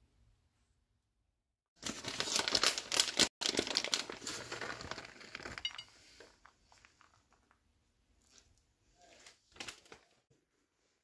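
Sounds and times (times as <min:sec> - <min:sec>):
plastic bag crinkling: 0:01.8 - 0:07.6.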